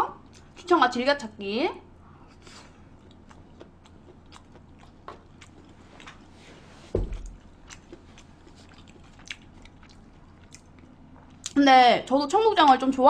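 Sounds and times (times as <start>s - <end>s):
chewing food: 2.3s - 11.6s
dull thump: 6.9s - 7.4s.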